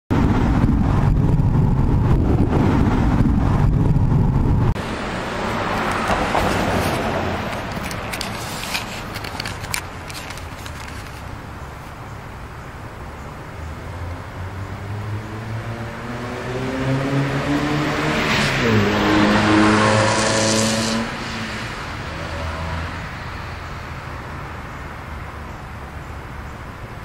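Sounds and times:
heavy low rumble: 0.1 - 8.4
car passing by: 4.8 - 9.0, 13.6 - 24.5.

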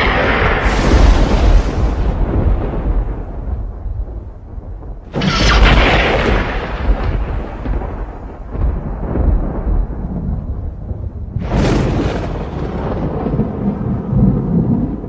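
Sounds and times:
thunder crack and rumble: 0.0 - 15.0.

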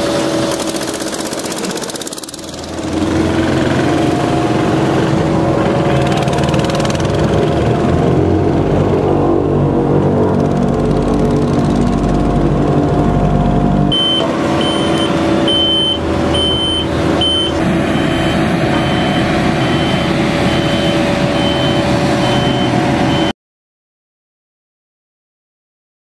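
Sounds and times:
paving machinery running: 0.0 - 23.3
small vehicle engine running: 0.0 - 23.3
reversing alarm beeping: 13.9 - 23.4.

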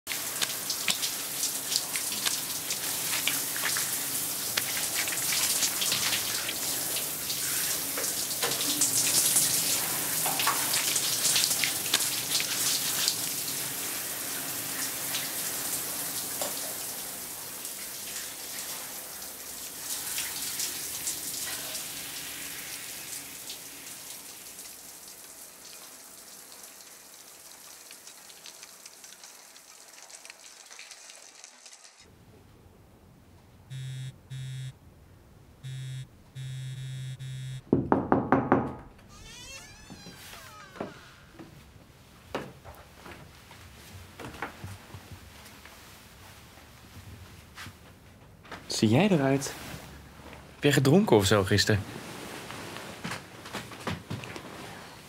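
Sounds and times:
shower spray pattering: 0.1 - 13.6.

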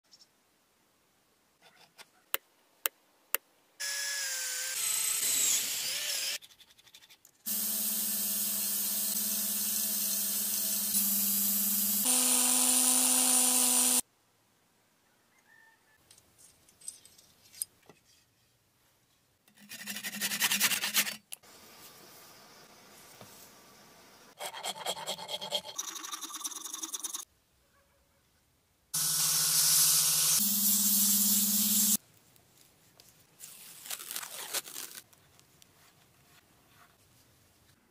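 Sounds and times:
loud steady hiss: 29.0 - 32.0.

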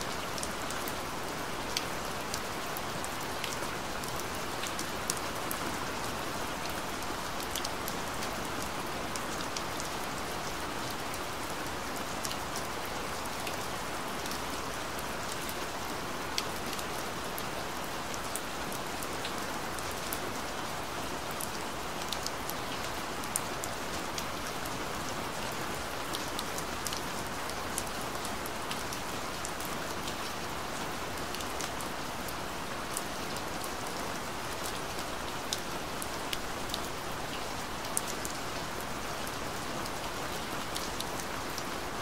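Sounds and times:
steady rain falling: 0.0 - 42.0.

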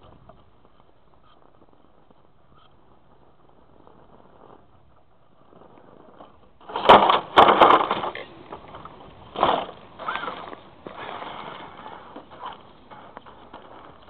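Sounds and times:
toy crawler motor and gears grinding: 5.5 - 14.0.

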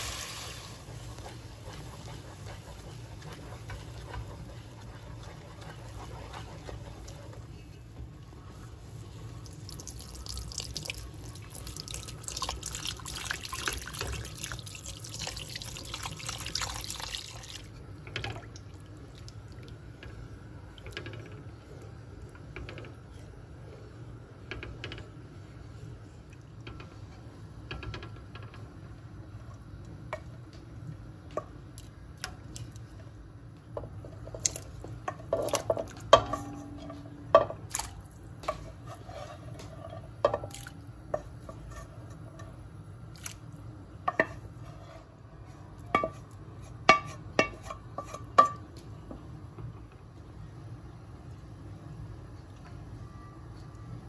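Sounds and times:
water pouring into a pot: 0.0 - 0.9, 9.4 - 17.7
wooden spoon stirring in pot: 0.0 - 50.2.

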